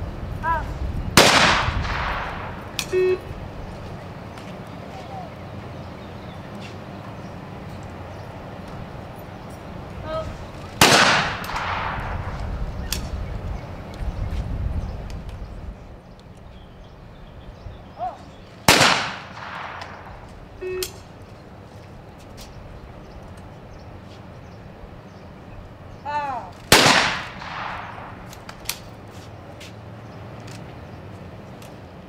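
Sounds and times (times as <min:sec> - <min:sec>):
shotgun shots: 0:01.2 - 0:03.0, 0:10.8 - 0:12.4, 0:18.7 - 0:20.2, 0:26.7 - 0:28.3
shooter calling: 0:01.2 - 0:03.4, 0:18.7 - 0:21.1.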